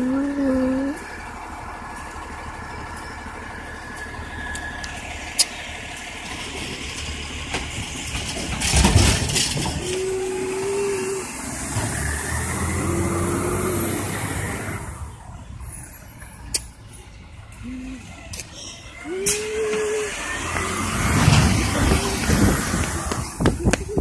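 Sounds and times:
diesel engine running: 0.0 - 24.0
loud clatter of trash cart: 6.2 - 10.2, 21.0 - 24.0.

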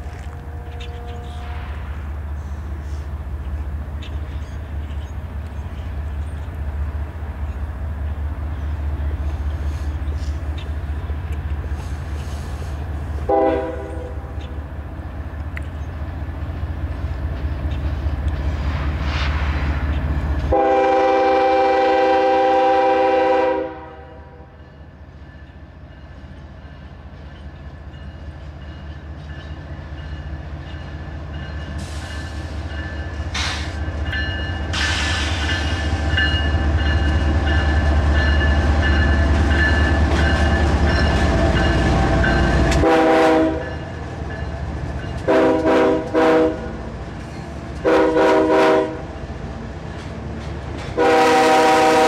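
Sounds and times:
diesel locomotives rumbling: 0.0 - 52.0
train horn: 0.2 - 1.9, 13.2 - 14.3, 20.5 - 24.6, 42.3 - 43.8, 45.2 - 46.9, 47.8 - 49.1, 51.0 - 52.0.

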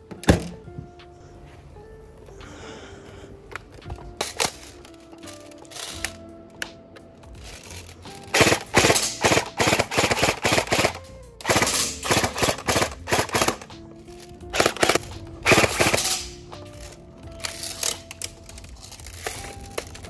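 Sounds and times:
airsoft rifle automatic fire: 8.3 - 13.7, 14.5 - 16.3.

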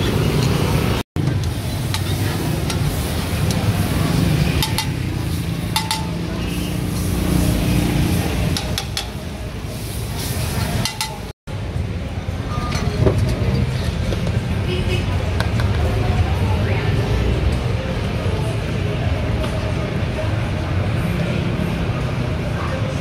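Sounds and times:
low street traffic rumble: 0.0 - 23.0
metal spatula clinking on plate: 4.6 - 5.0, 5.8 - 6.2, 10.8 - 11.3.

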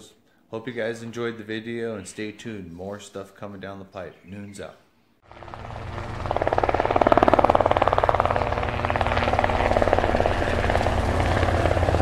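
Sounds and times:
helicopter rotor blades beating: 5.2 - 12.0
low engine hum: 5.3 - 12.0.

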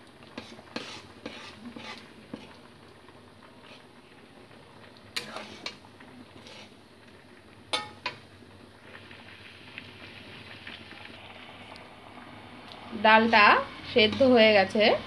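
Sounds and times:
spatula stirring in metal pot: 0.3 - 2.6, 5.2 - 5.8, 6.4 - 6.8, 7.7 - 8.2, 13.1 - 14.9
metal spatula knocking pot: 7.7 - 8.2.

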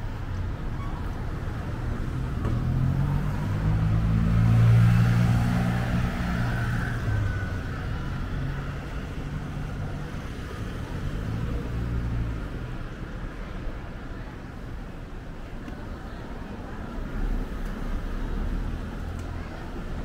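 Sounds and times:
vehicle engine passing by: 2.0 - 10.0.

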